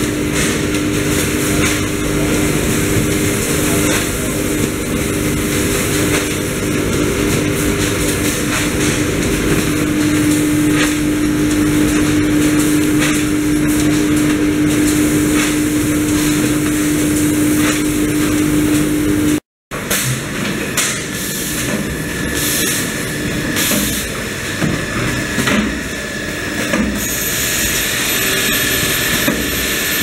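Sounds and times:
machinery humming: 0.0 - 30.0.

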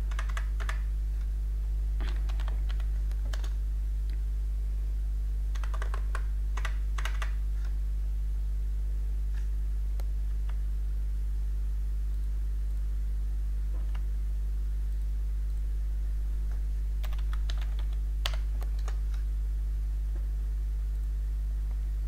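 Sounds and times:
keyboard typing: 0.0 - 0.9, 2.0 - 3.6, 5.5 - 7.8, 17.0 - 19.2
steady low hum: 0.0 - 22.0.

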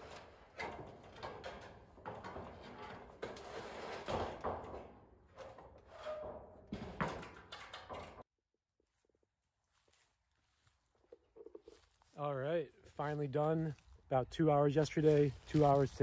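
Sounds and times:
metal roofing scraping on wood: 0.0 - 8.2.

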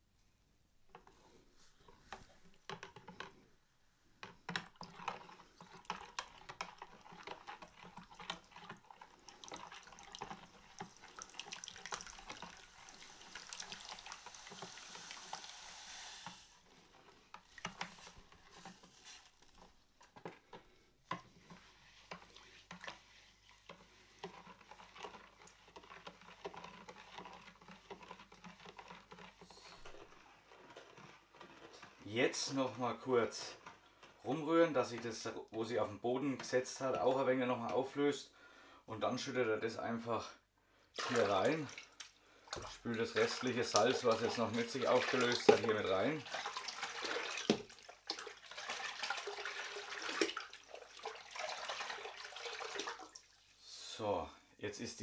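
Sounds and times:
spoon stirring water in bowl: 4.2 - 35.6, 41.0 - 53.6
salt pouring into water: 4.8 - 19.8, 21.5 - 33.7, 41.0 - 53.9.

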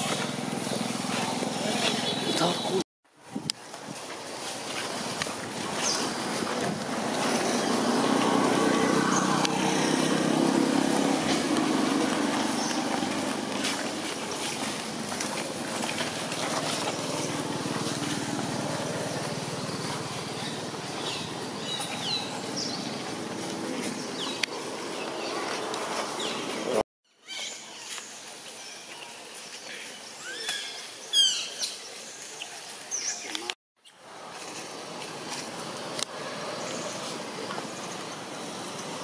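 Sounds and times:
motor engine running: 0.0 - 2.7, 5.3 - 26.8.

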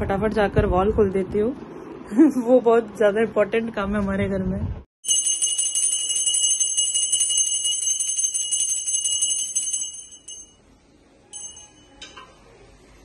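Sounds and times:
hand bell ringing rapidly: 5.0 - 10.6, 11.4 - 11.9.

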